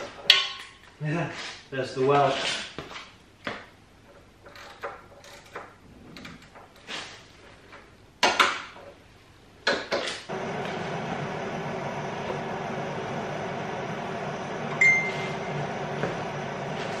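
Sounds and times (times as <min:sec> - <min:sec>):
welder electrical hum: 0:10.3 - 0:17.0.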